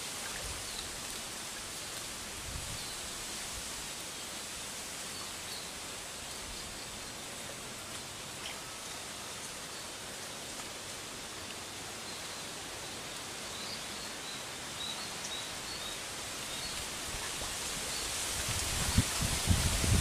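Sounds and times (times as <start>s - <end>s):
outdoor background hiss: 0.0s - 20.0s.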